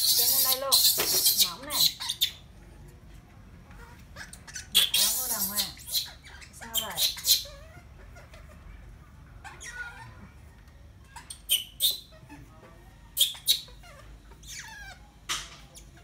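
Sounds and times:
baby monkey squealing: 0.0s - 2.4s, 3.8s - 8.6s, 9.4s - 10.2s, 11.0s - 12.4s, 13.1s - 16.0s.

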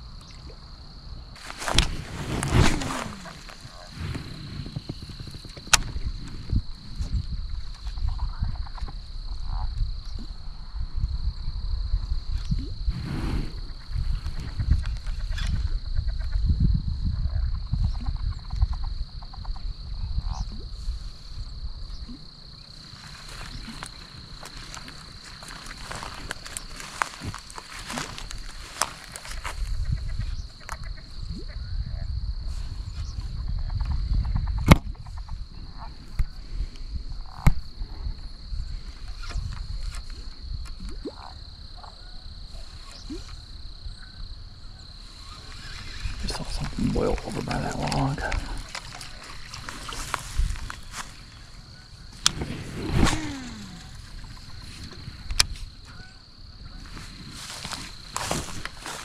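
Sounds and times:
frogs calling: 0.0s - 12.9s, 13.5s - 59.0s
insects trilling: 0.0s - 59.0s
low rumble on microphone: 1.2s - 41.9s
quick pulsed croaks: 40.6s - 59.0s.

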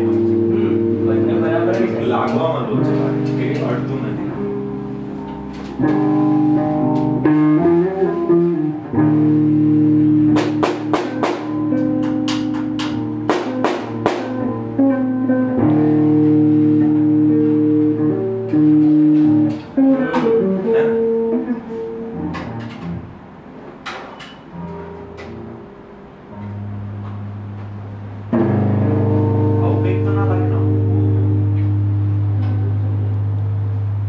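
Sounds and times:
guitar chords: 0.0s - 34.0s
sharp percussive hits: 10.3s - 14.5s.

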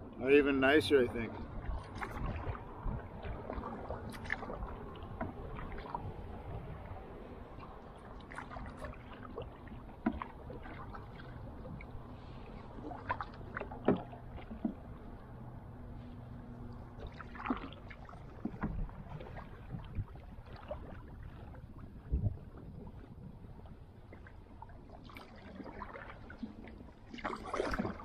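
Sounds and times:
paddle strokes in water: 0.0s - 28.0s
paddle knocks: 1.8s - 6.0s, 9.9s - 11.9s, 12.9s - 15.0s, 17.0s - 21.4s.

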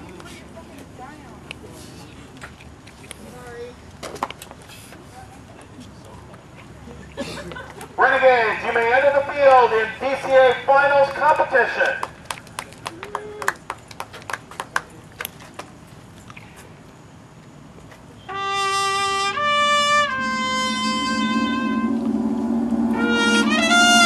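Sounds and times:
brass horn line chord: 18.3s - 24.0s
low brass: 18.3s - 24.0s.

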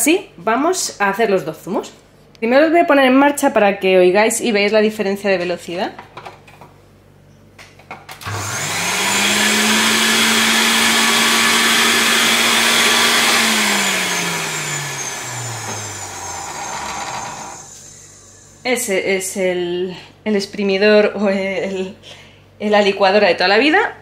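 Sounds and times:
juicer motor whirring: 8.2s - 18.6s.

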